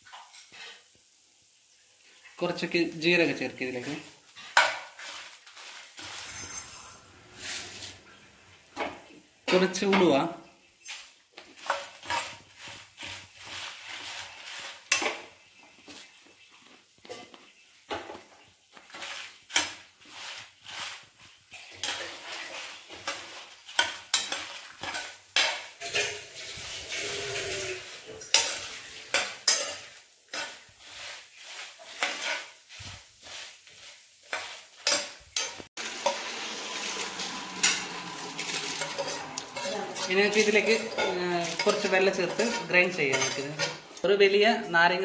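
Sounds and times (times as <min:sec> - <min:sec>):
light sizzle: 0:00.0 - 0:45.0
metal spoon scraping pan: 0:03.8 - 0:10.1, 0:10.8 - 0:16.1, 0:18.9 - 0:44.7.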